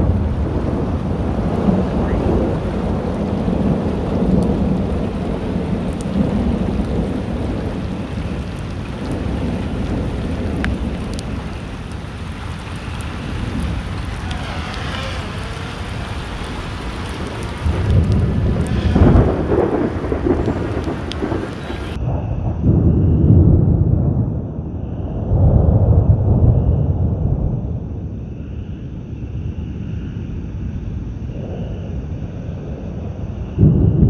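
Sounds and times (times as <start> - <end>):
steady rain: 0.0 - 24.6
low rolling thunder: 0.0 - 34.0.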